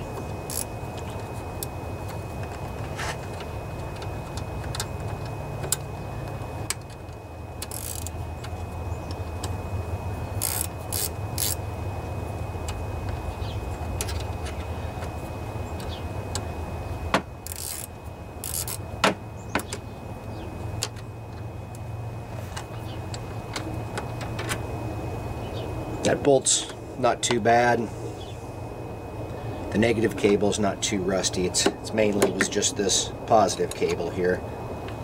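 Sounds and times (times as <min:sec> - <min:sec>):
steady low hum: 0:00.0 - 0:35.0
wrench clicking and scraping on bolt: 0:00.4 - 0:01.2, 0:06.7 - 0:08.5, 0:10.4 - 0:11.6, 0:17.4 - 0:18.8
sharp metal clicks: 0:06.6 - 0:09.6, 0:10.4 - 0:11.6, 0:17.4 - 0:18.8.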